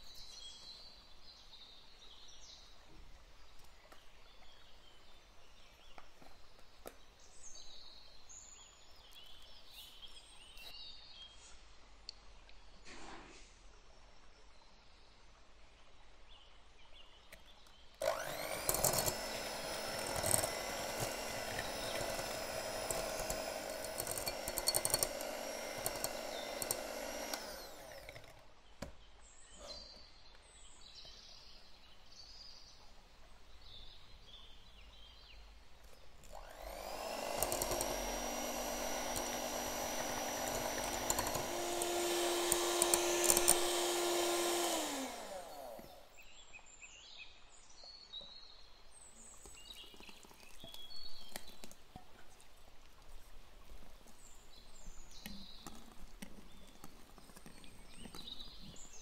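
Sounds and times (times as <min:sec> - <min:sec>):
electric hand mixer humming: 0:18.0 - 0:28.5, 0:36.2 - 0:46.1.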